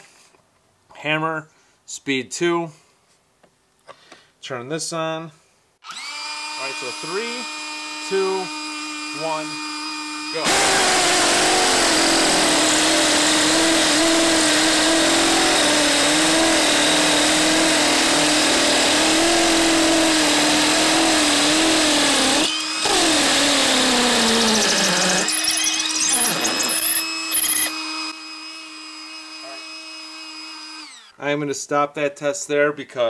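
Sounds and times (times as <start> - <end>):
hammer drill whine and rattle: 5.8 - 31.2.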